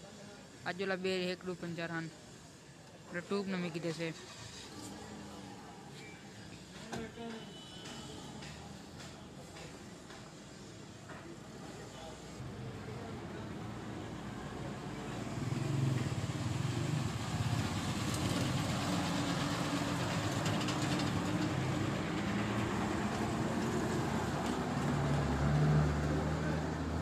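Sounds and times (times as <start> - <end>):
street noise: 0.0 - 27.0
bus engine running slowly: 13.6 - 27.0.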